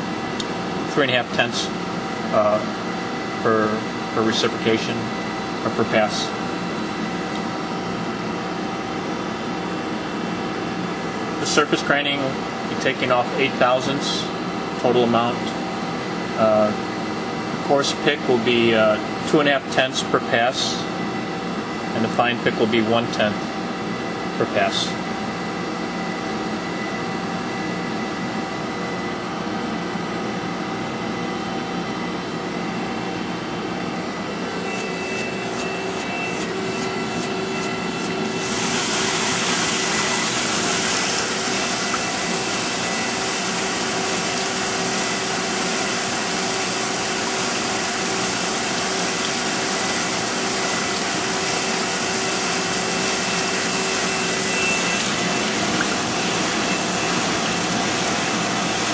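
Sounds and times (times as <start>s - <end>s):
grinder machine hum: 33.0s - 58.9s
coolant rushing hiss: 37.1s - 58.9s.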